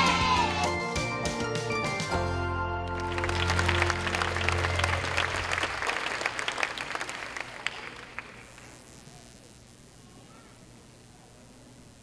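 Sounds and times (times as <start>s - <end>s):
audience applause: 2.9s - 8.8s.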